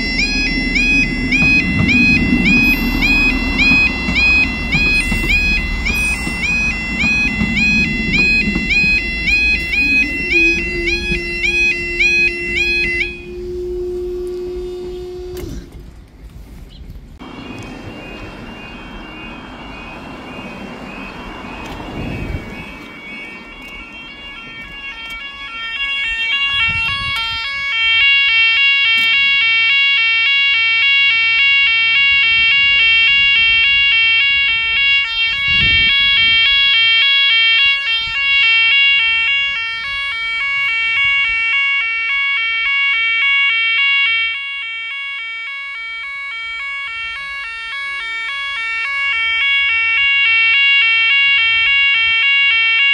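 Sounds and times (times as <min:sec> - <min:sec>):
cars passing: 0:00.0 - 0:13.8, 0:17.1 - 0:26.8
warbling level crossing alarm: 0:00.0 - 0:15.8, 0:17.2 - 0:52.9.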